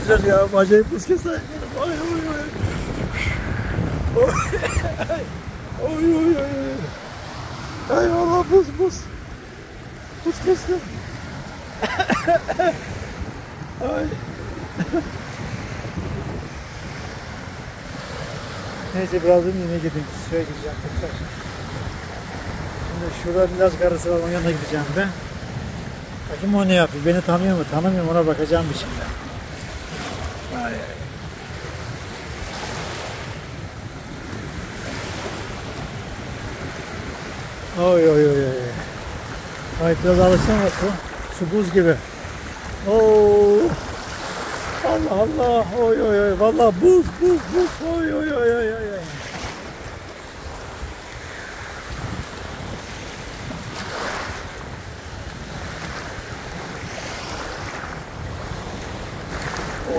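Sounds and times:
waves washing over pebbles: 0.0s - 59.9s
wind rumbling on microphone: 0.0s - 59.9s.

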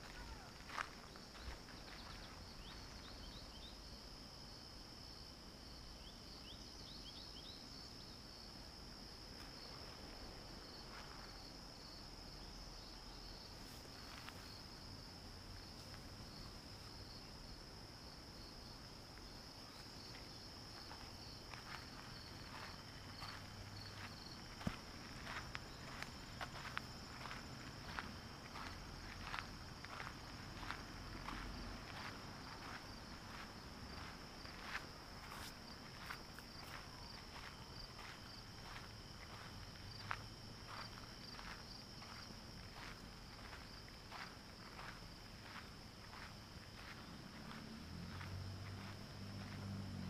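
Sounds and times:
footsteps on gravel: 0.0s - 3.0s, 20.0s - 49.8s
crickets chirping: 0.0s - 50.0s.

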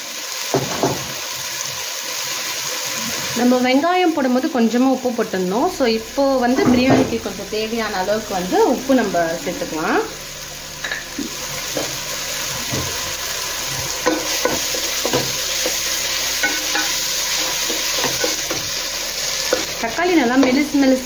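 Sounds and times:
masala sizzling in a pan: 0.0s - 21.0s
spatula scraping and knocking pan: 10.8s - 20.7s.

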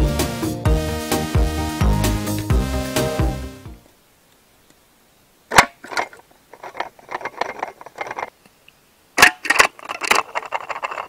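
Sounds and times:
cans clattering and knocking: 5.5s - 8.4s, 9.2s - 11.0s.

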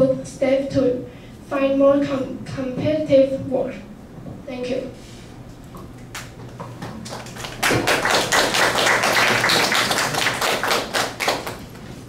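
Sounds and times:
audience clapping: 6.2s - 12.0s.

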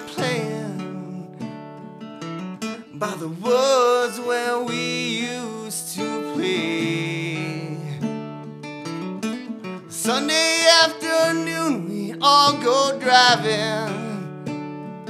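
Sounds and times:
man singing: 0.0s - 1.6s, 2.8s - 8.1s, 9.9s - 14.5s
acoustic guitar strumming: 0.0s - 15.0s.

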